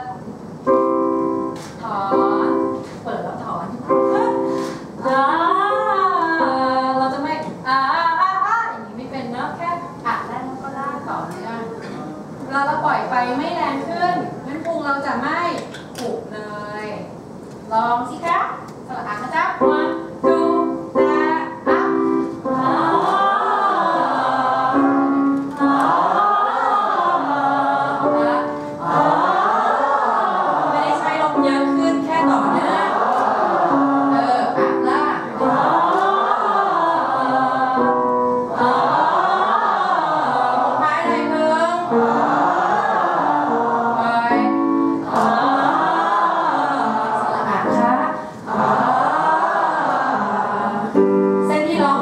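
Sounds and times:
group singing vocal warm-up: 0:04.4 - 0:07.6, 0:19.8 - 0:52.0.

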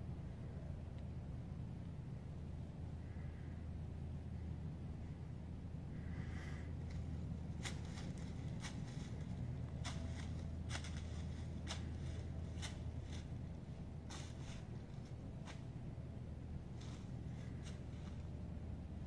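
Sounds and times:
steady low rumble: 0:00.0 - 0:19.0
hooves crunching dry leaves: 0:06.7 - 0:19.0.

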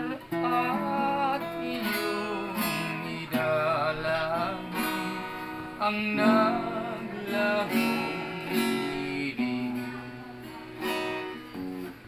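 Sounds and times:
acoustic guitar strumming chords: 0:00.0 - 0:12.0.

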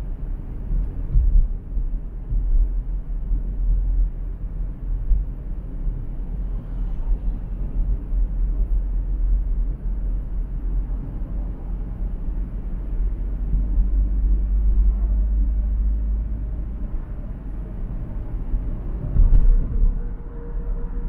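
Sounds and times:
road and wind noise from car: 0:00.0 - 0:21.0.

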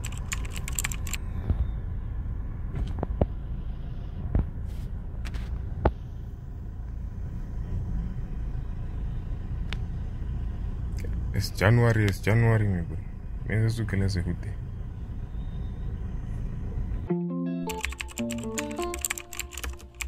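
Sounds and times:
sharp clicks: 0:00.0 - 0:01.2, 0:17.7 - 0:20.0
typing-like clicks: 0:00.0 - 0:01.2, 0:17.7 - 0:20.0
car engine rumble from inside: 0:00.0 - 0:17.1.

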